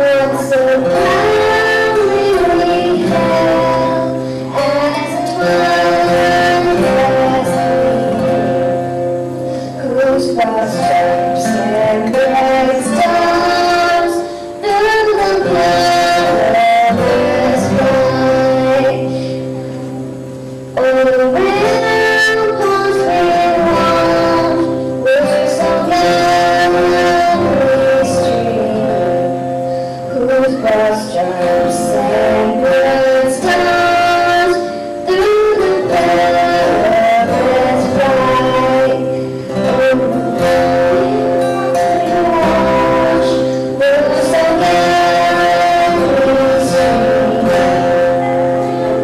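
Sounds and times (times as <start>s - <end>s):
acoustic guitar: 0.0s - 49.0s
girl singing into a microphone: 0.0s - 49.0s.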